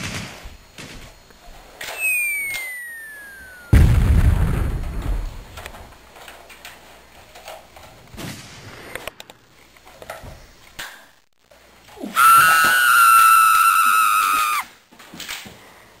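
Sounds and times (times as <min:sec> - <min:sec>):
loud held tone: 0:01.9 - 0:04.1
loud bang: 0:02.1 - 0:05.4.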